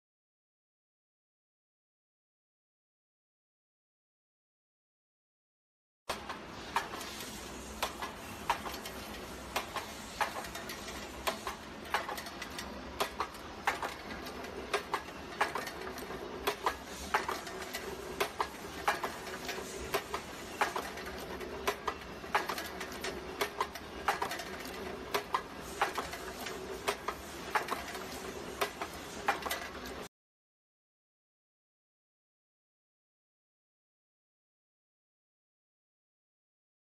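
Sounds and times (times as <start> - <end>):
mechanical hum: 6.1 - 30.1
metallic clacking of machine: 6.1 - 30.1.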